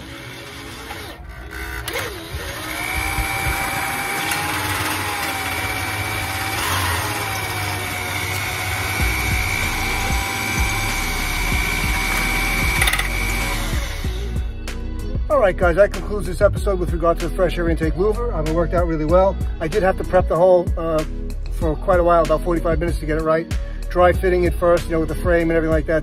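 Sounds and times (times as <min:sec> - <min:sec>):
motor spinning up: 0:00.0 - 0:14.6.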